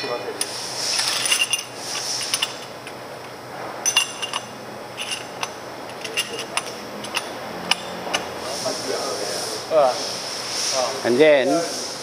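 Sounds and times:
metal plates clinking: 3.8s - 8.3s.

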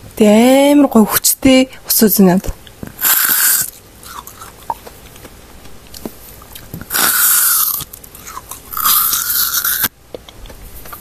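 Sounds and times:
crunchy ice cream bites: 2.9s - 11.0s
small chewing clicks: 3.6s - 11.0s.

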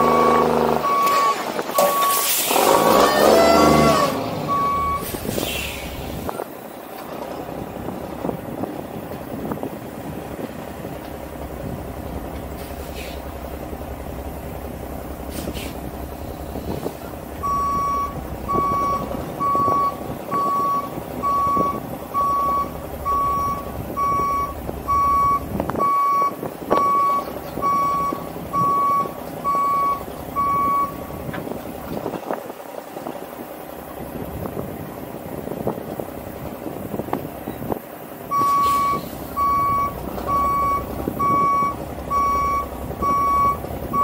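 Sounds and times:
truck backup alarm beeping: 0.0s - 6.5s, 15.8s - 31.2s, 38.2s - 44.0s
truck engine running: 0.0s - 44.0s.

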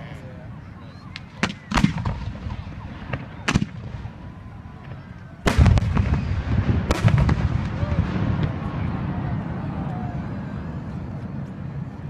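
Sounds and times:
fireworks exploding: 1.1s - 10.2s.

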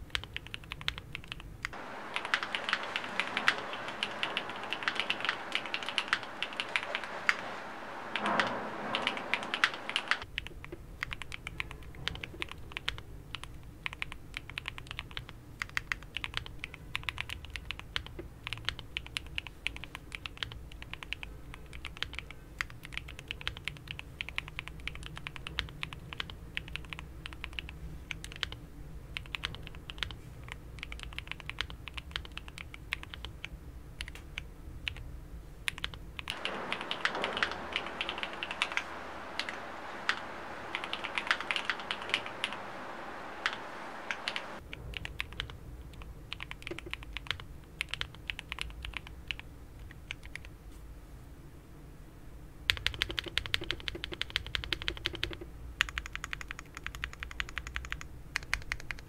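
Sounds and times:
fast mechanical keyboard typing: 0.1s - 34.2s, 35.7s - 50.5s, 52.7s - 59.0s
steady low hum: 1.7s - 10.2s, 36.3s - 44.9s.

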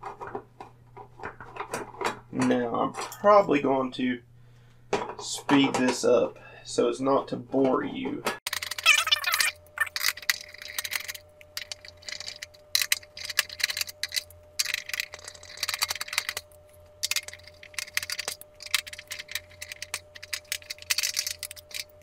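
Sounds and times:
faint steady hum: 0.0s - 22.0s
screwdriver clicks and scrapes: 8.5s - 22.0s.

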